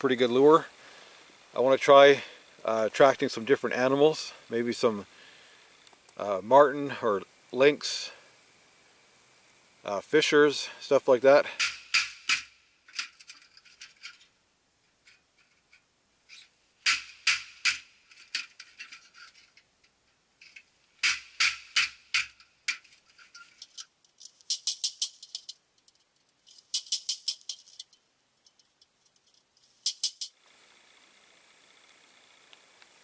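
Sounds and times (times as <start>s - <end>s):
hatchet striking sheet metal: 11.6s - 12.5s, 16.8s - 17.9s.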